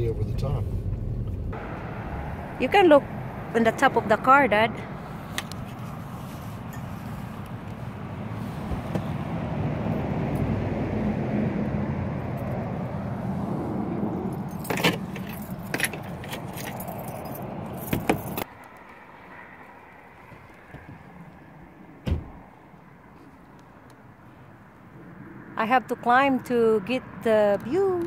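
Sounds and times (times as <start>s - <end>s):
outdoor rushing noise: 0.0s - 23.4s
sharp clicks and jingles: 14.3s - 18.5s.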